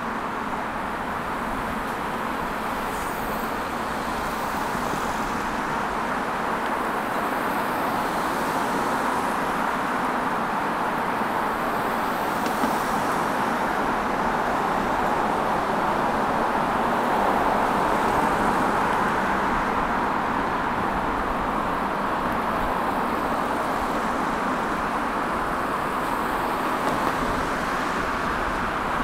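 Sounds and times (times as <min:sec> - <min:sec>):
road traffic passing: 0:00.0 - 0:29.0.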